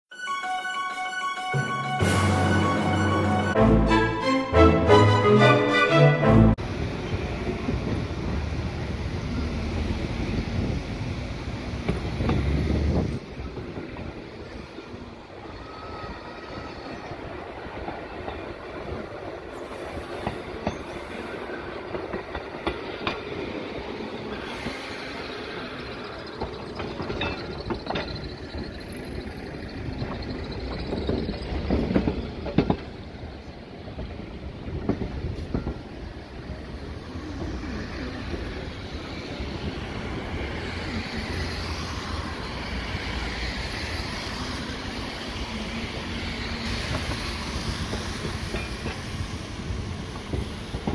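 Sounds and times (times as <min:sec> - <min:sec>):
tram wheels rumbling on rail: 0:06.2 - 0:50.9
wheels clattering over rail joints: 0:26.1 - 0:33.5.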